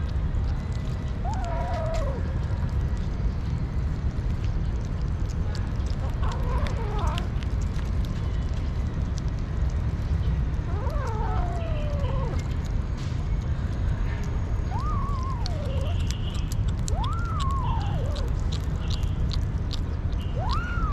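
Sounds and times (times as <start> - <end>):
kittens chewing and smacking: 0.0 - 20.9
steady low rumble: 0.0 - 20.9
kitten meowing: 1.2 - 2.3, 6.2 - 7.3, 10.7 - 12.6, 14.7 - 19.0, 20.3 - 20.9.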